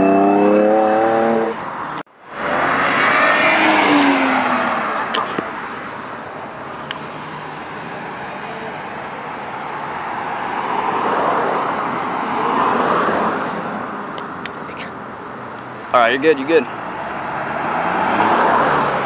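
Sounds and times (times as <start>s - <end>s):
car driving past: 0.0s - 5.1s, 17.0s - 19.0s
vehicle approaching: 0.0s - 15.0s
road noise: 0.0s - 19.0s.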